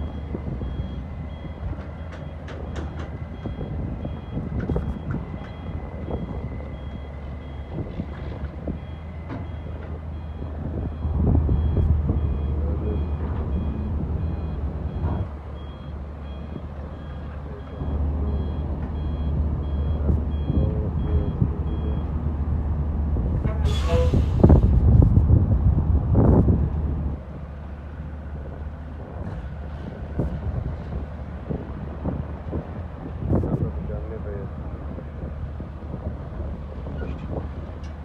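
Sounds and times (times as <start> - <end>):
truck reversing alarm beeping: 0.0 - 22.2
diesel engines rumbling: 0.0 - 38.0.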